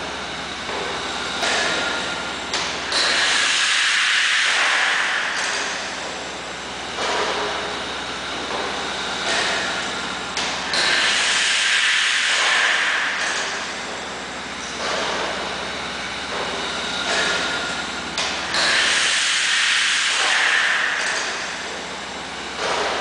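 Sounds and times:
steady machine hum: 0.0 - 23.0
hissing exhaust air: 2.9 - 6.0, 7.1 - 13.9, 15.2 - 21.7.

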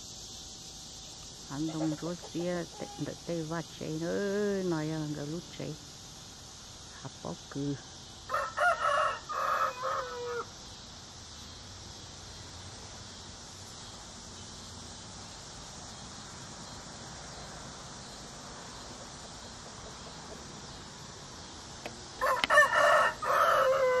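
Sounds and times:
steady background hiss: 0.0 - 24.0
rooster crowing: 8.3 - 10.5, 22.2 - 24.0.

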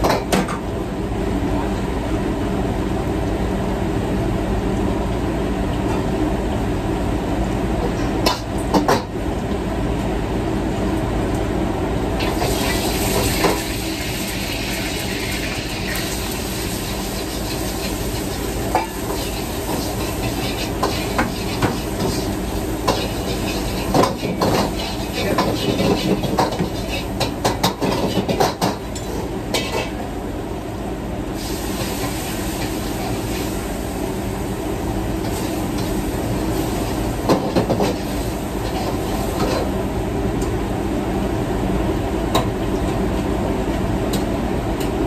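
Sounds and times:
gas burners and exhaust hood noise: 0.0 - 45.0
food sizzling in wok: 12.2 - 30.0, 31.3 - 40.0
metal utensils clanking on wok: 17.2 - 30.0.

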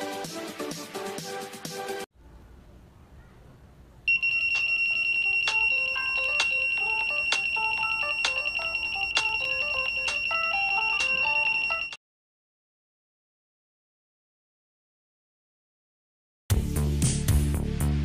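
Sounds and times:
high-pitched buzzer alarm tone: 4.1 - 12.0
phone ringtone melody: 4.1 - 12.0.

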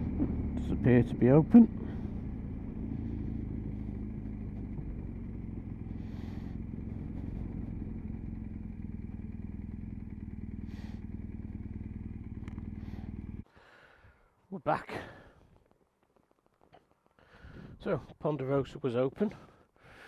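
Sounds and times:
motorcycle engine running low: 0.0 - 13.5.

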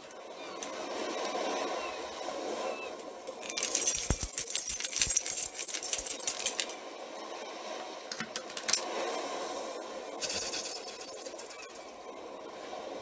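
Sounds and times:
rummaging in a pocket: 3.4 - 6.7.

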